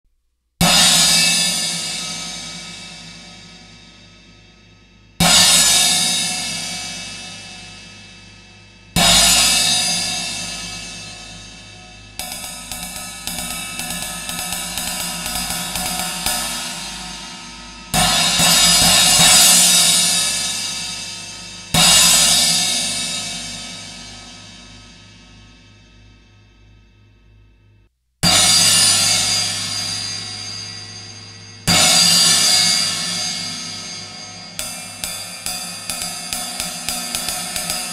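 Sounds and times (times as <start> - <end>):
cymbal crashes ringing: 9.0 - 25.5, 28.2 - 37.9.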